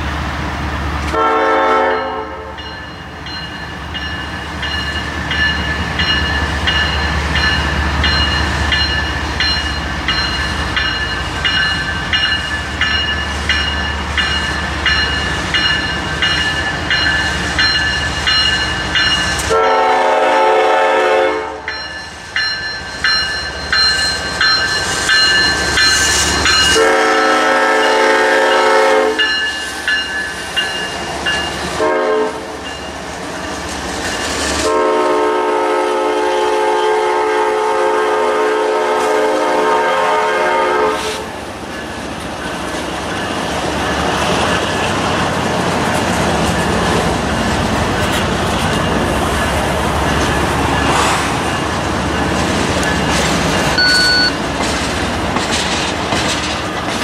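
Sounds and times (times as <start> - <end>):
locomotive rumble: 0.0 - 57.0
locomotive air horn blasts: 1.1 - 2.6, 19.4 - 21.7, 26.6 - 29.3, 31.8 - 32.6, 34.6 - 41.3
bell ringing: 2.6 - 19.4, 21.7 - 26.8, 29.2 - 31.6, 50.0 - 54.4.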